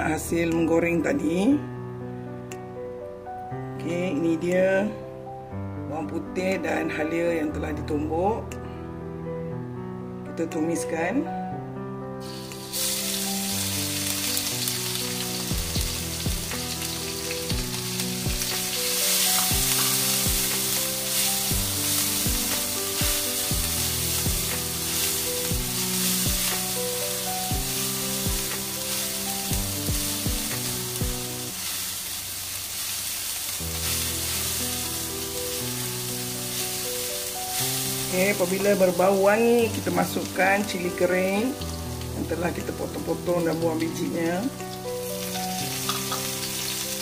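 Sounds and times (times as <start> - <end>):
garlic sizzling in hot oil: 12.2 - 47.0.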